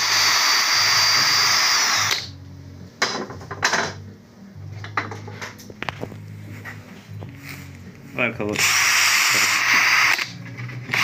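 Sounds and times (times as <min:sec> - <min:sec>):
cordless drill whining: 0:00.0 - 0:02.3, 0:08.6 - 0:11.0.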